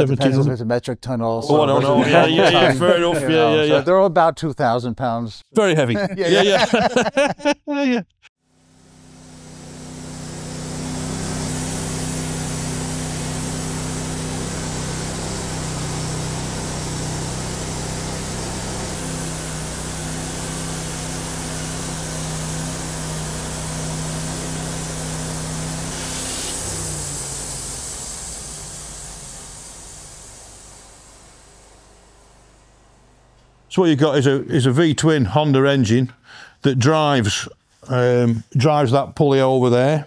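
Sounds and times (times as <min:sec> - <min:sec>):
petrol engine running: 0:08.6 - 0:33.7
band saw blade cutting log: 0:09.4 - 0:27.8.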